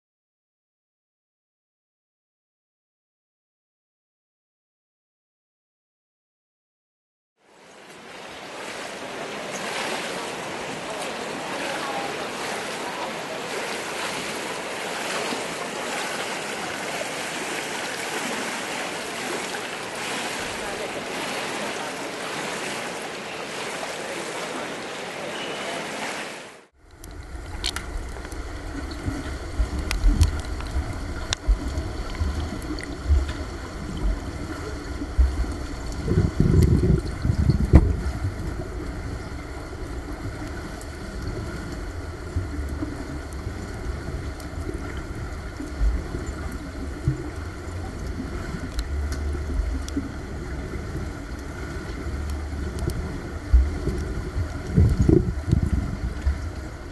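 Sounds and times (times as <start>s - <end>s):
swimmer splashing water: 7.6s - 56.9s
underwater clicks: 26.8s - 39.0s, 40.3s - 56.8s
faint steady hums: 26.8s - 56.9s
muffled underwater rumble: 26.8s - 56.9s.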